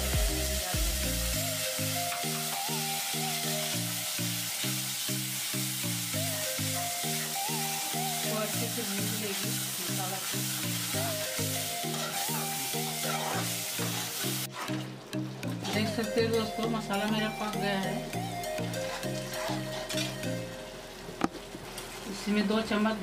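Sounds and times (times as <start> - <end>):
paste sizzling in oil: 0.0 - 14.8
background music: 0.0 - 21.2
ladle stirring: 11.8 - 16.7, 18.5 - 20.6.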